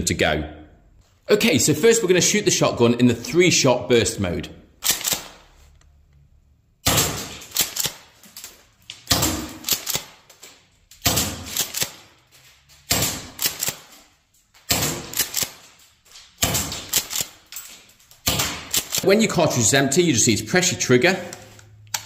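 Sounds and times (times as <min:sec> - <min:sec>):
airsoft shotgun shots: 0:06.8 - 0:08.0, 0:11.0 - 0:12.0, 0:12.9 - 0:13.8, 0:14.7 - 0:15.6, 0:16.4 - 0:17.3.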